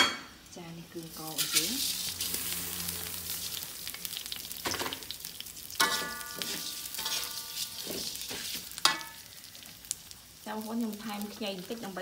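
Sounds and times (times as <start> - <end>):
rice sizzling in a wok: 0.2 - 12.0
metal spatula scraping wok: 1.2 - 3.9, 5.8 - 9.4.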